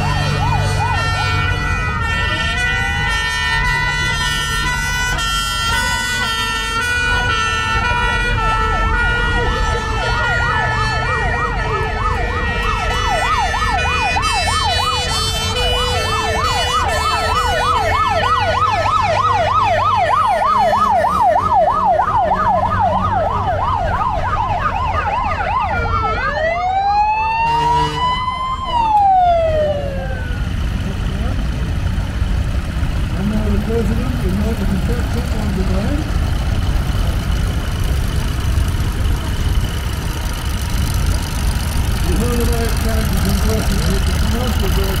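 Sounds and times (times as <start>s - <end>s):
fast electronic yelp siren: 0.0s - 1.5s, 8.6s - 30.6s
two-tone hi-lo siren: 0.0s - 30.6s
engines rumbling: 0.0s - 45.0s
slow wailing siren: 0.0s - 45.0s.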